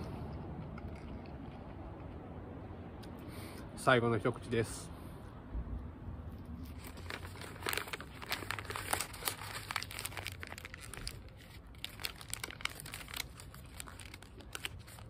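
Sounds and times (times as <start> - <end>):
paper crumpling: 6.6 - 15.0.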